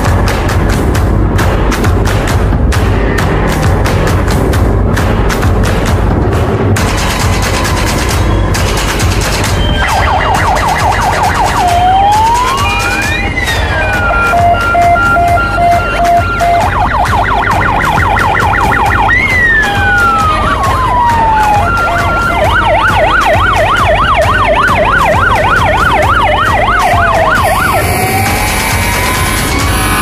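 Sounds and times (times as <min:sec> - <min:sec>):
fire engine sirens: 0:09.5 - 0:30.0.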